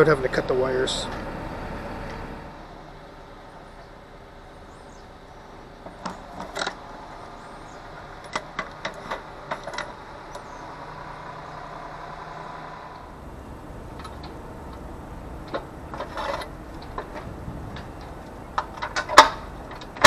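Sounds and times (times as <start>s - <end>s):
engine-like hum: 0.0s - 20.0s.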